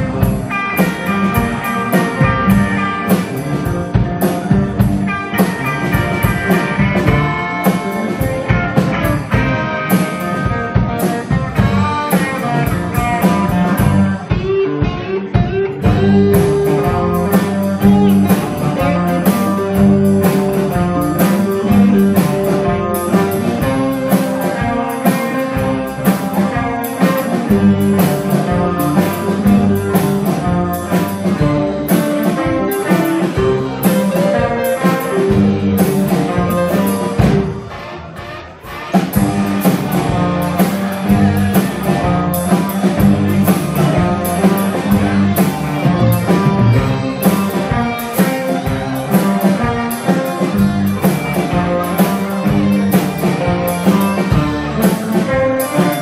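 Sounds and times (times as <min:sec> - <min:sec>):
bass: 0:00.0 - 0:56.0
drum kit: 0:00.0 - 0:56.0
electric guitars: 0:00.0 - 0:56.0.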